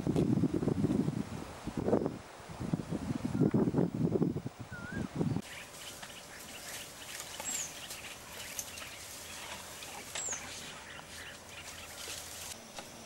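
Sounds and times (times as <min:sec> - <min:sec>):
birds whistling: 0:04.7 - 0:12.6.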